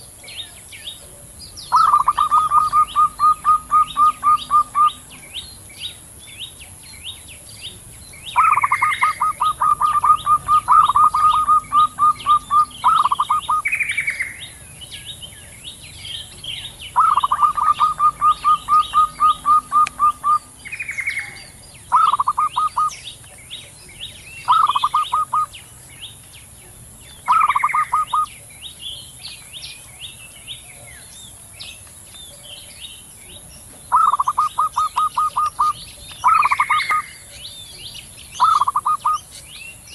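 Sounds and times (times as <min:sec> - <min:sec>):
small birds chirping: 0:00.0 - 0:39.9
doves cooing: 0:01.0 - 0:05.4, 0:07.8 - 0:14.6, 0:16.1 - 0:23.0, 0:24.0 - 0:25.6, 0:27.3 - 0:28.4, 0:33.4 - 0:37.6, 0:38.4 - 0:39.3.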